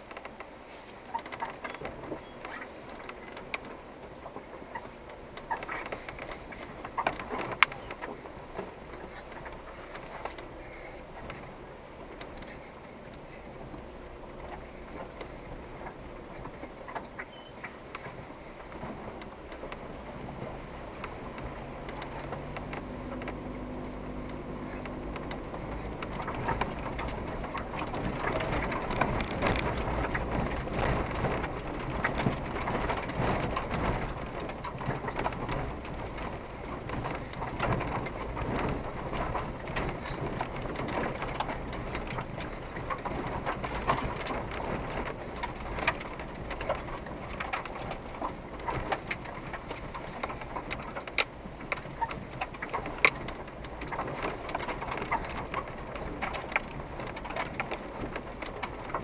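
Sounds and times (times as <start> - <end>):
low engine hum: 0.0 - 59.0
tyres crackling over stones: 0.0 - 59.0.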